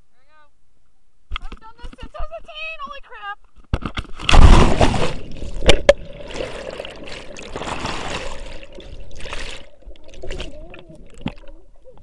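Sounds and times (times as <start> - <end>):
loud splash into water: 4.2 - 8.6
underwater churning bubbling water: 4.3 - 12.0.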